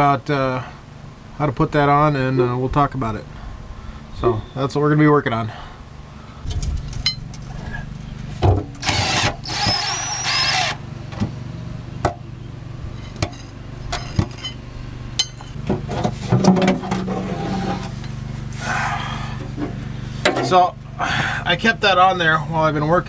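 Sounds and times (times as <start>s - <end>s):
steady low hum: 0.0s - 23.0s
metal clinks: 6.9s - 7.4s
power tool whining: 8.8s - 11.3s.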